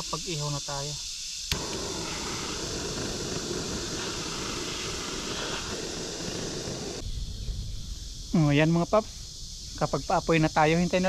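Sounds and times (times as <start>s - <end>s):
wood fire hissing and crackling: 0.0s - 11.0s.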